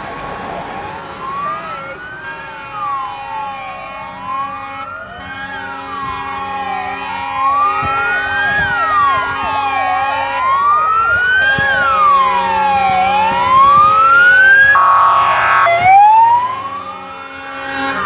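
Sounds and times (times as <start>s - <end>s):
wailing siren: 0.0s - 18.0s
yelping siren: 0.6s - 18.0s
vehicle horn: 4.0s - 10.6s, 11.4s - 13.6s, 14.8s - 15.7s, 16.5s - 18.0s.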